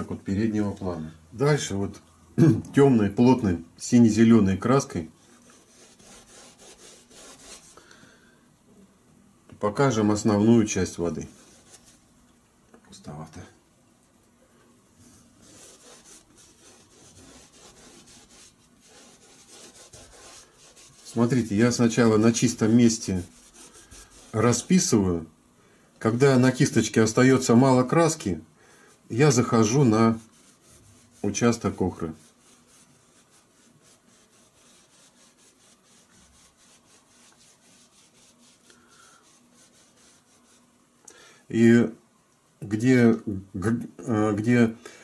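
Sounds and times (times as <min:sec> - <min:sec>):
bristle brush scratching on canvas: 0:04.8 - 0:07.8, 0:11.0 - 0:12.1, 0:15.0 - 0:25.1, 0:29.0 - 0:40.8.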